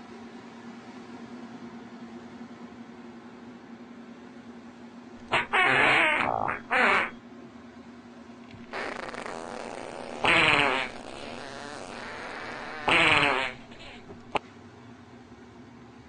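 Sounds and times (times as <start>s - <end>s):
cat hissing: 5.2s - 7.2s, 8.7s - 14.4s.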